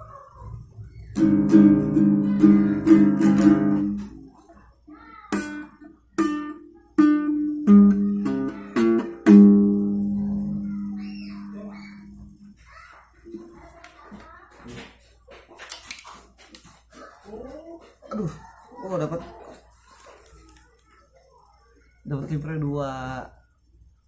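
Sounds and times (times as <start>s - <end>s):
small guitar strummed: 1.2s - 4.3s, 5.3s - 12.3s.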